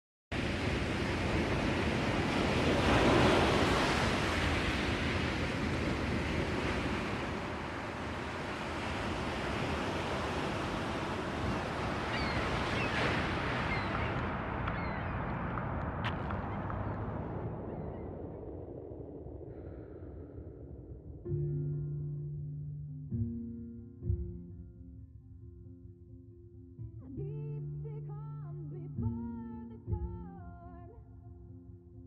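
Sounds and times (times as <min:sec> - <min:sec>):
ocean waves washing: 0:00.3 - 0:21.9.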